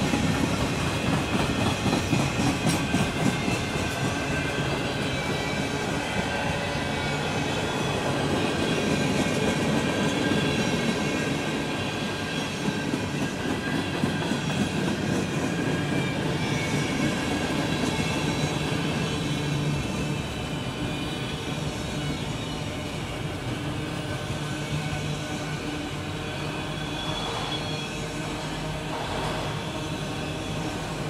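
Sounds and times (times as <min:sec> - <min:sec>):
train wheels rumbling on rails: 0:00.0 - 0:31.0
high-pitched wheel squeal: 0:25.4 - 0:30.9.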